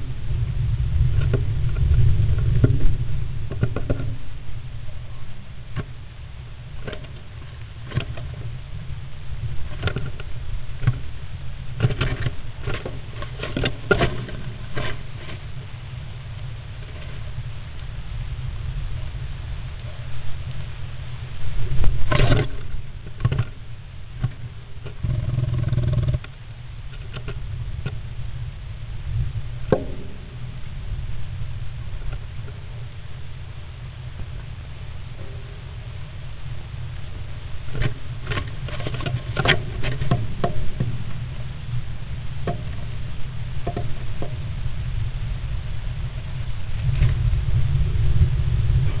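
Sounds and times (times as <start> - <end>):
low rumble: 0.0 - 49.0
steady low hum: 0.0 - 49.0
rustling: 6.8 - 17.9.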